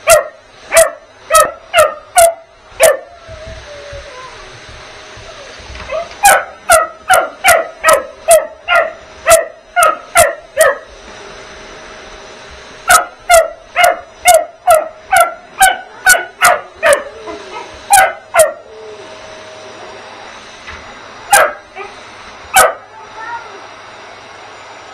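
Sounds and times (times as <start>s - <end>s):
puppy barking: 0.0s - 3.1s, 5.9s - 10.9s, 12.9s - 18.7s, 21.3s - 21.9s, 22.6s - 22.9s
vacuum cleaner hum: 0.0s - 24.9s.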